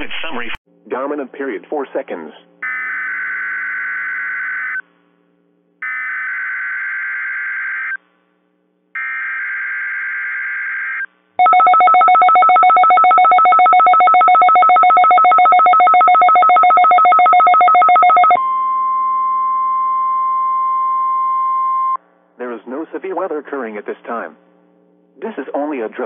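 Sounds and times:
steady single-pitched warning tone: 0:11.4 - 0:22.0.

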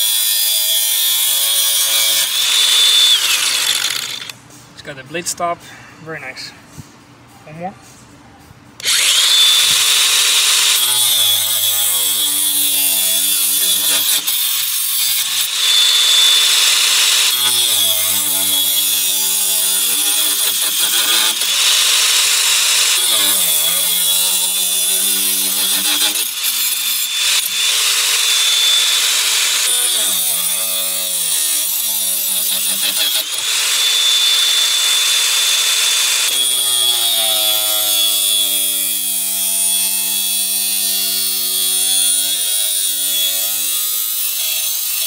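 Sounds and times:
angle grinder high whine: 0:00.0 - 0:04.3, 0:08.8 - 0:44.7
disc cutting metal pipe hum: 0:08.8 - 0:31.4.

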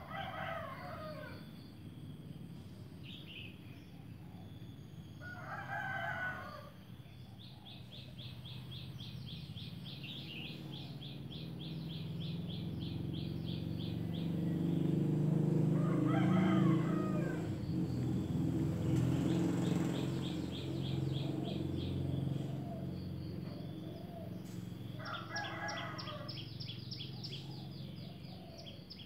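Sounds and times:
rooster crowing: 0:00.0 - 0:01.7, 0:05.2 - 0:06.8, 0:13.8 - 0:18.4, 0:22.5 - 0:27.6.

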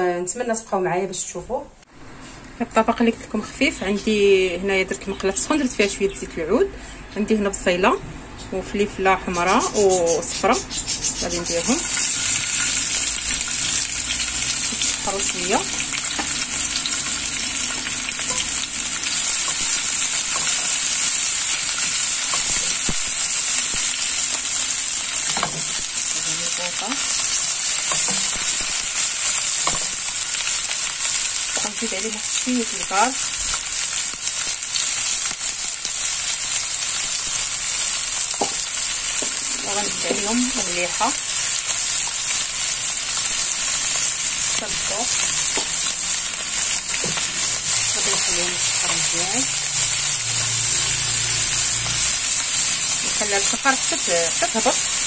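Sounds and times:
vegetables sizzling in oil: 0:08.7 - 0:55.0
spatula stirring in frying pan: 0:11.6 - 0:31.8.

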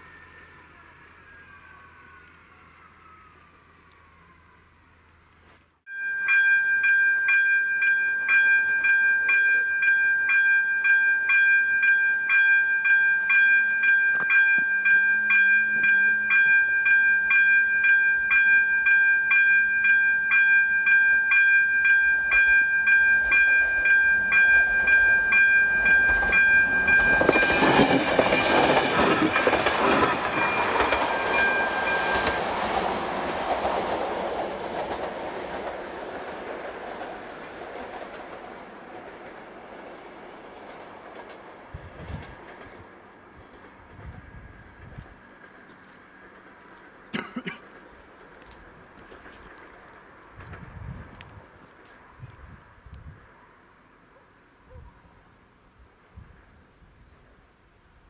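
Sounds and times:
level crossing warning bell: 0:05.9 - 0:33.9
train rumble and wheel clatter: 0:06.7 - 0:58.0.

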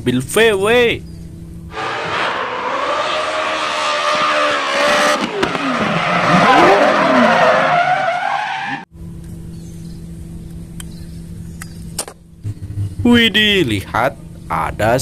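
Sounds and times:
rally car engine revving: 0:01.7 - 0:08.8
gravel and tyres noise: 0:01.7 - 0:08.9
low steady hum: 0:09.0 - 0:15.0.

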